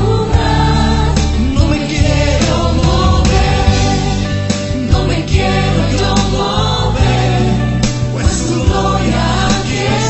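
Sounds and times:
band playing: 0:01.1 - 0:05.7.

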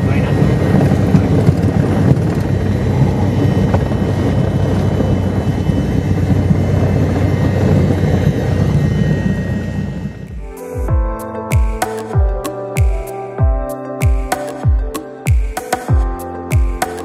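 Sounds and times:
light aircraft engine drone: 0:00.0 - 0:10.5.

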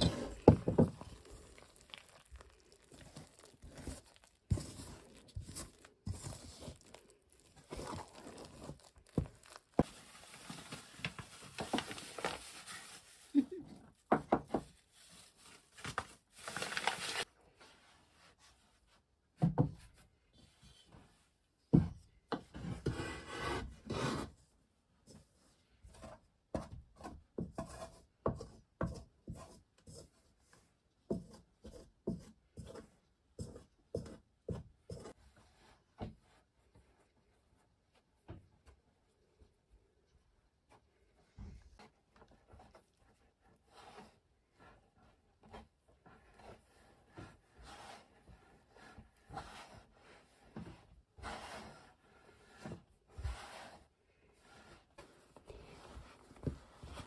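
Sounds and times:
plastic bag crinkling: 0:00.3 - 0:13.4.

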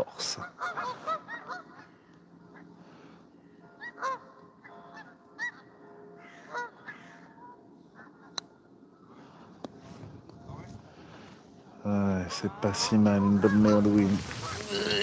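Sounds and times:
geese honking: 0:00.0 - 0:08.4, 0:12.1 - 0:15.0.

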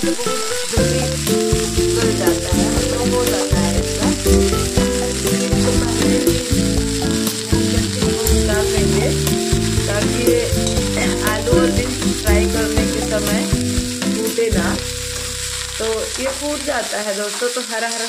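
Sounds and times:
vegetables sizzling in hot oil: 0:00.0 - 0:18.0.

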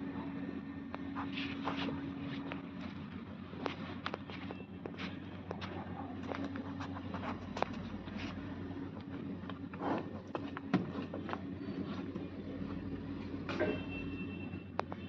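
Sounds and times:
low mechanical hum: 0:00.0 - 0:15.0
hooves scuffing on dry dirt: 0:01.0 - 0:12.2.

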